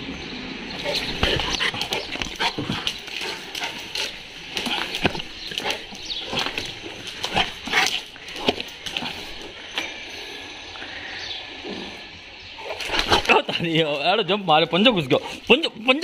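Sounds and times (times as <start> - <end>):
dog moving about: 0.8 - 9.9, 12.6 - 13.5.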